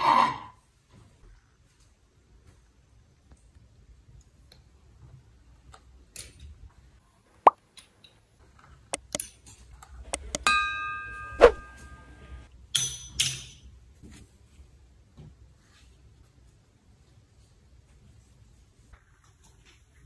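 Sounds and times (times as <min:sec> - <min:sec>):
button clicks: 0:09.0 - 0:09.2, 0:10.2 - 0:10.5
bell ding: 0:10.4 - 0:12.4.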